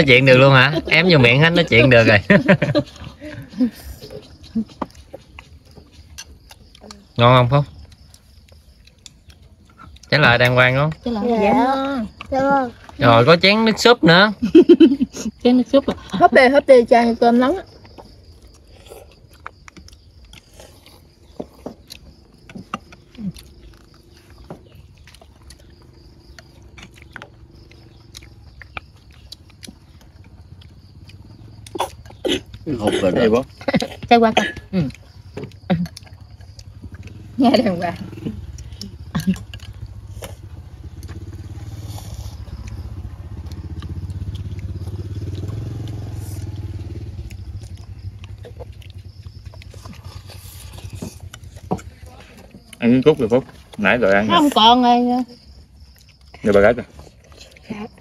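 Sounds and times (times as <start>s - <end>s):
chewing: 0.0s - 58.0s
small engine puttering past: 25.6s - 33.7s, 34.7s - 52.1s.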